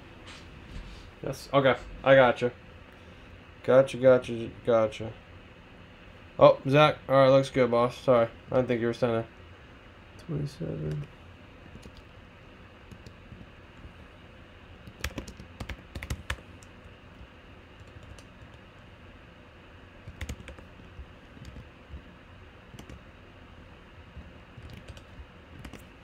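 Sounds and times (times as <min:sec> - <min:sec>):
computer keyboard typing: 0:10.9 - 0:12.1, 0:12.9 - 0:13.5, 0:14.8 - 0:16.7, 0:17.8 - 0:18.7, 0:20.0 - 0:22.1, 0:22.7 - 0:23.0, 0:24.2 - 0:25.9.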